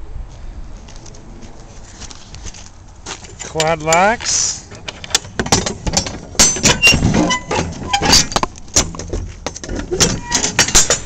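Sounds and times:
metal lock rods clanking and rattling: 0:03.3 - 0:11.0.

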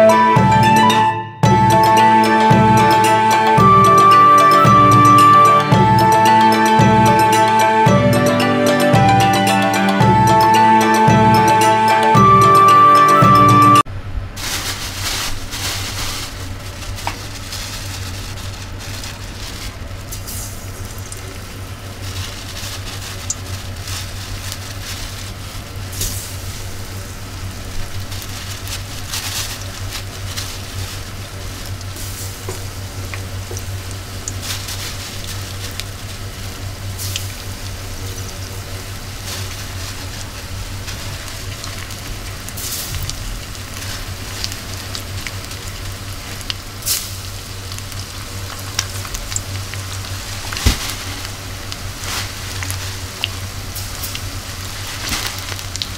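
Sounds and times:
fish deep-frying in oil: 0:14.5 - 0:55.9.

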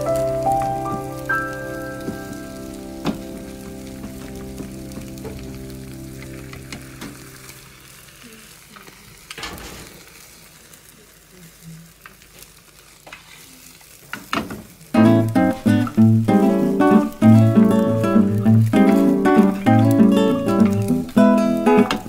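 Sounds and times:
acoustic guitar music: 0:00.0 - 0:08.0, 0:14.9 - 0:22.0
egg sizzling in a pan: 0:00.0 - 0:22.0.

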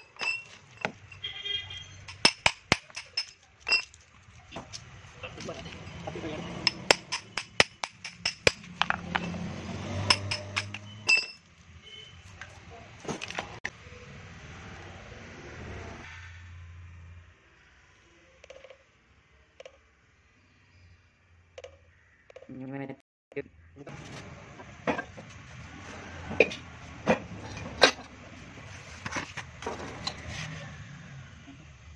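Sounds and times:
sharp metallic clinks: 0:00.0 - 0:04.0, 0:05.8 - 0:11.5.

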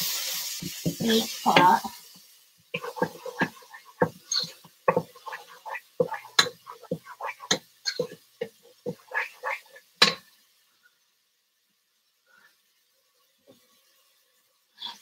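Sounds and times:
onions sizzling: 0:00.0 - 0:15.0
spoon knocking and scraping pot: 0:02.8 - 0:10.3.

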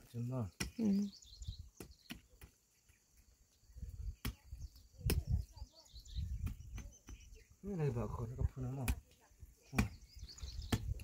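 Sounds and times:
hand hoe knocking stony soil: 0:01.7 - 0:02.6, 0:08.6 - 0:11.0.

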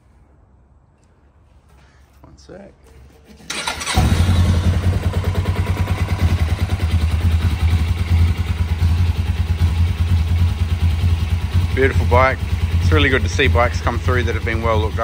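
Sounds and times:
motorcycle electric starter: 0:03.4 - 0:07.9
motorcycle engine idling: 0:03.5 - 0:15.0.

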